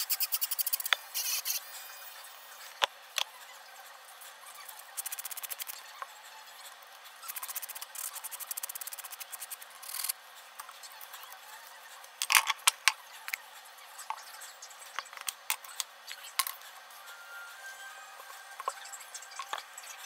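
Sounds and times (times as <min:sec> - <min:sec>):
nail file scratching acrylic nail: 0:00.0 - 0:01.7, 0:04.9 - 0:05.8, 0:07.2 - 0:10.2.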